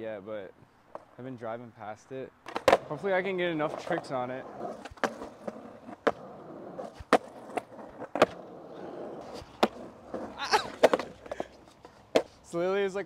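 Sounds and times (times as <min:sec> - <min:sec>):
skateboard wheels rolling on concrete: 0:00.1 - 0:13.0
skateboard clattering on concrete: 0:02.4 - 0:12.5
skateboard cracking on ground: 0:02.4 - 0:12.5.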